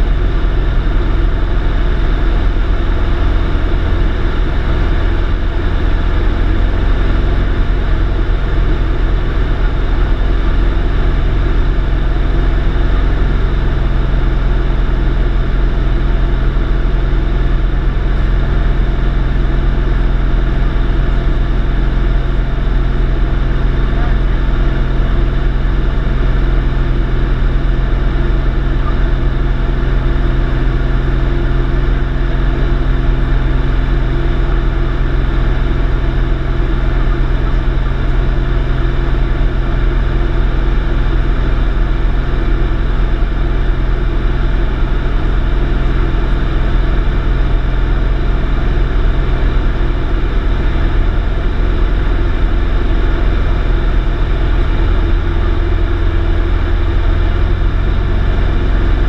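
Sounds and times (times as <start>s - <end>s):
light aircraft engine droning: 0.0s - 59.0s.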